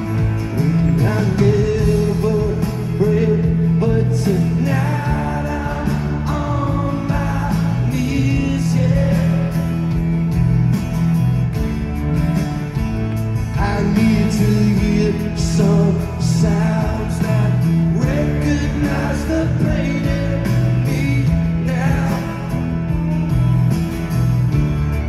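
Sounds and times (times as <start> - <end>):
electric guitar: 0.0 - 25.0
steady drum beat: 0.0 - 25.0
strummed acoustic guitar: 0.0 - 25.0
man singing: 0.6 - 10.0, 13.5 - 23.0.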